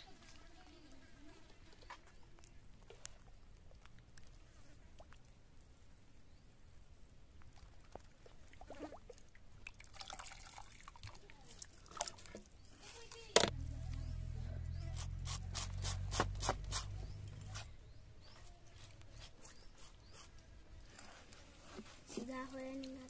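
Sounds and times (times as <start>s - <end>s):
water dripping and sloshing: 7.4s - 13.4s
low rumble: 13.5s - 18.2s.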